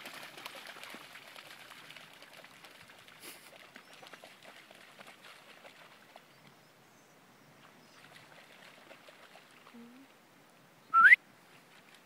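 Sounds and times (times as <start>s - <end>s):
faint outdoor background: 0.0s - 12.0s
loud rising whistle: 11.0s - 11.2s.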